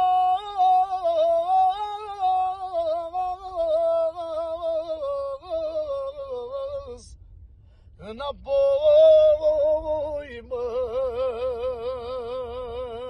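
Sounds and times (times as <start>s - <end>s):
man singing unaccompanied: 0.0s - 7.2s, 8.0s - 13.0s.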